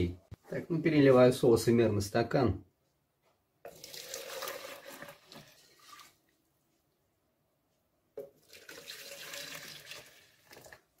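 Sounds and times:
sauce splashing into a jug: 0:03.7 - 0:06.2, 0:08.2 - 0:10.9.

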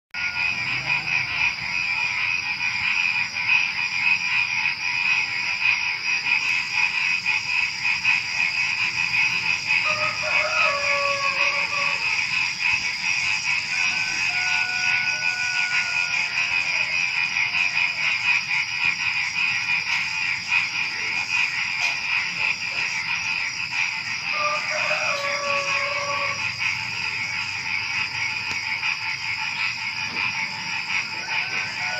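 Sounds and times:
rooster crowing: 0:00.2 - 0:01.5, 0:09.7 - 0:12.4, 0:13.4 - 0:18.0, 0:24.3 - 0:27.1, 0:30.8 - 0:31.9
crickets trilling: 0:00.2 - 0:31.9
frogs calling: 0:00.2 - 0:31.9.

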